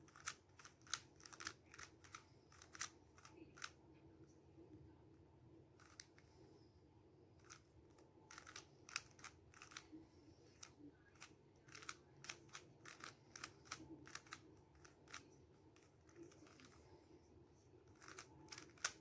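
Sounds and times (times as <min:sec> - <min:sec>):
low room hum: 0:00.0 - 0:19.0
puzzle cube layers clicking: 0:17.9 - 0:19.0.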